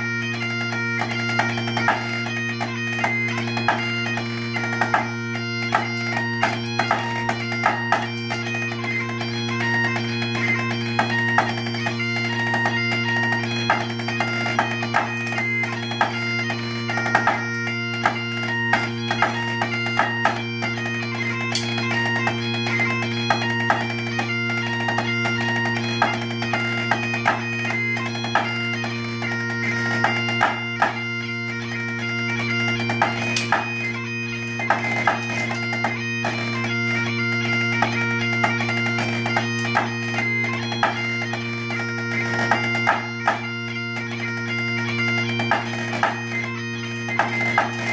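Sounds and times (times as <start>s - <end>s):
bagpipe playing a fast tune: 0.0s - 47.9s
drumsticks tapping a practice pad: 1.0s - 5.1s, 5.7s - 8.8s, 11.0s - 16.2s, 17.0s - 17.4s, 18.0s - 20.8s, 21.5s - 28.6s, 30.0s - 31.0s, 32.7s - 33.9s, 37.8s - 40.2s, 40.8s - 43.5s, 45.4s - 46.2s, 47.1s - 47.9s.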